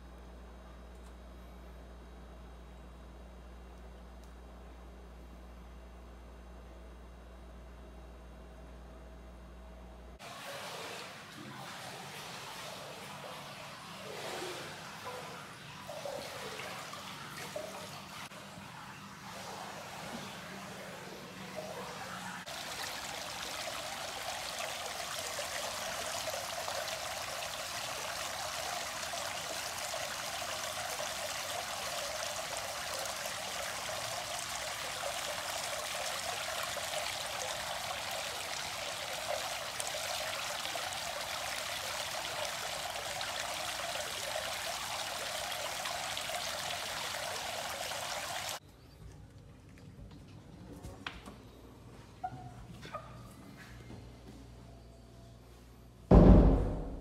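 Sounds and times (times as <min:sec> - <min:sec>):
water splashing from fountain spout: 0:22.4 - 0:48.6.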